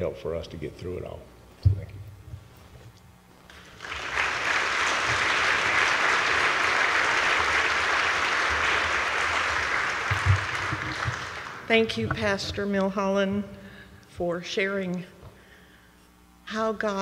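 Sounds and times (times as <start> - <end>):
audience applauding: 3.5 - 11.7.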